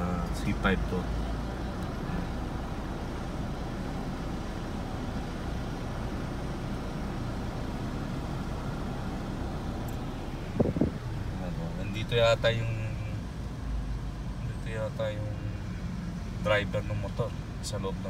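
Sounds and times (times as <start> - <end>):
traffic noise inside car: 0.0 - 18.0.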